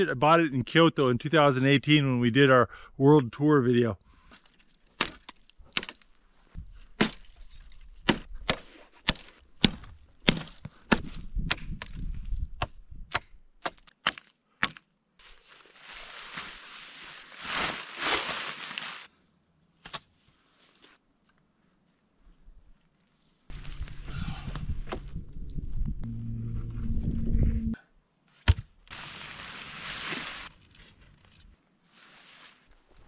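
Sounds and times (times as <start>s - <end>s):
hatchet chopping wooden poles: 4.4s - 6.1s, 6.9s - 14.9s, 28.4s - 28.7s
rough scraping and rustling: 15.2s - 19.1s, 23.1s - 27.8s, 28.9s - 33.0s.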